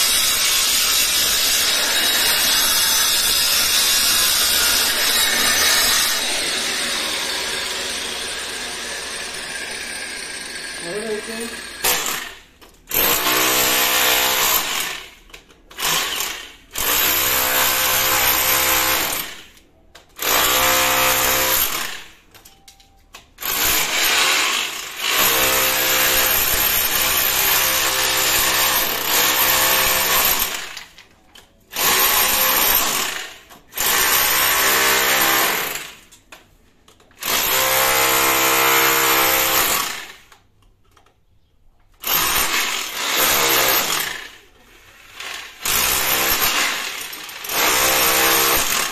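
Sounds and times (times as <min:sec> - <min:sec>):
rotary hammer chiselling brick wall: 0:00.0 - 0:10.9, 0:11.6 - 0:22.7, 0:23.3 - 0:48.9.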